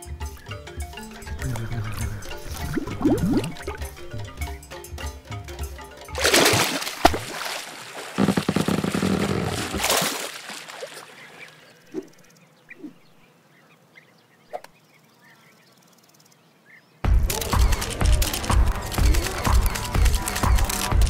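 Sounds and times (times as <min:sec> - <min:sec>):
music: 0:00.0 - 0:07.1, 0:17.0 - 0:21.0
cartoon water splashing: 0:01.2 - 0:04.4, 0:06.1 - 0:12.2
faint chirps: 0:11.0 - 0:21.0.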